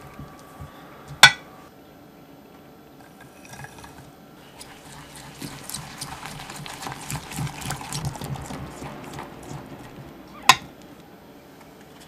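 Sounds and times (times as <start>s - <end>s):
whisk beating mixture in jug: 3.4s - 10.8s.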